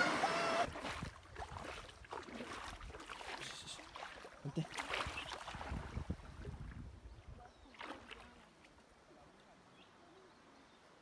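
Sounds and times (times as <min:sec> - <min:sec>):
wind buffeting microphone: 0:05.0 - 0:07.6.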